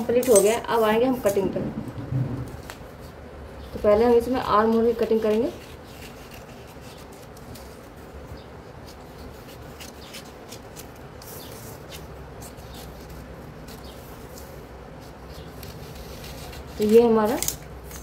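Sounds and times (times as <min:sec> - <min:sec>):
low background hum: 0:00.0 - 0:18.0
scissors snipping newspaper: 0:04.3 - 0:08.0, 0:08.8 - 0:18.0
paper rustling: 0:04.6 - 0:08.1, 0:08.8 - 0:18.0.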